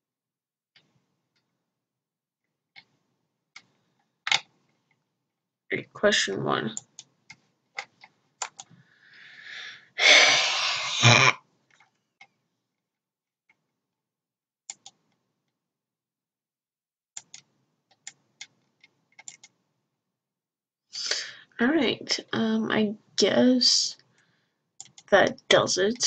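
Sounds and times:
computer mouse clicks: 0:06.8 - 0:08.8, 0:14.7 - 0:15.2, 0:17.2 - 0:19.6, 0:24.8 - 0:25.1
person breathing in: 0:08.8 - 0:11.3.

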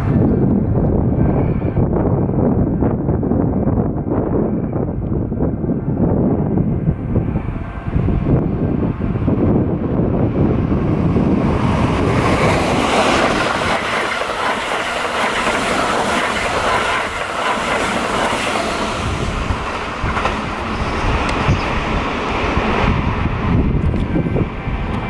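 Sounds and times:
train wheels running on rails: 0:06.2 - 0:25.0.

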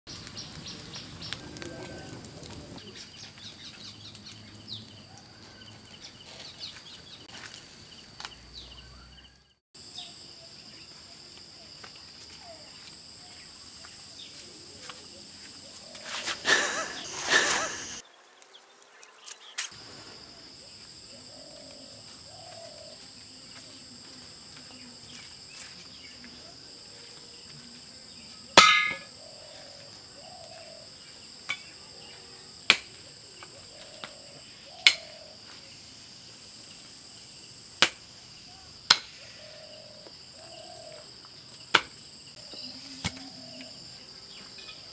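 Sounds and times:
wood fire crackling: 0:00.1 - 0:07.8, 0:13.6 - 0:18.0
shrill insect calls: 0:03.0 - 0:44.9.

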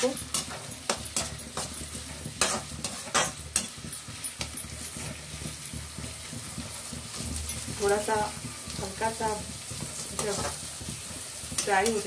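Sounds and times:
metal spatula scraping a pan: 0:00.0 - 0:07.8
onions sizzling in oil: 0:00.0 - 0:12.0.

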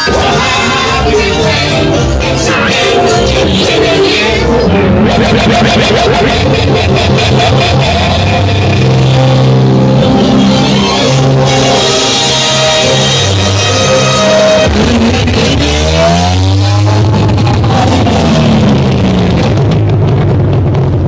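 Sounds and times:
loud music with low bass: 0:00.0 - 0:21.0.

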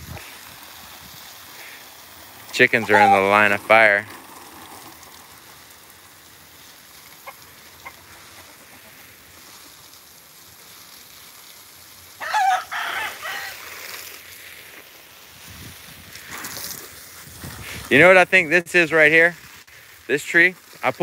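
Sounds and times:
garden hose spraying water: 0:00.0 - 0:21.0
rooster crowing: 0:02.9 - 0:03.2, 0:12.2 - 0:13.8.

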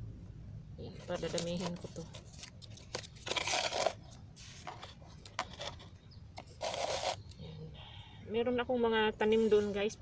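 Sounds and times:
rustling and scraping of plants: 0:00.8 - 0:07.7, 0:09.1 - 0:10.0.

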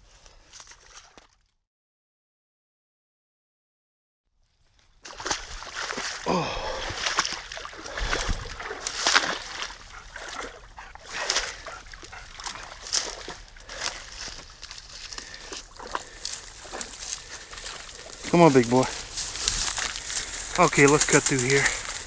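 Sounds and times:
splashing in muddy creek: 0:04.6 - 0:22.0
twigs snapping underfoot: 0:07.0 - 0:22.0.

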